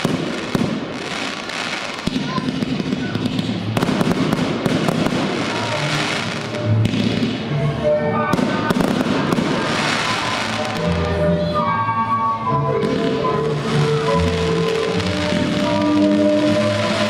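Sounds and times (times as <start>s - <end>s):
firework shells launching and bursting: 0.0s - 7.5s
music playing: 0.0s - 17.0s.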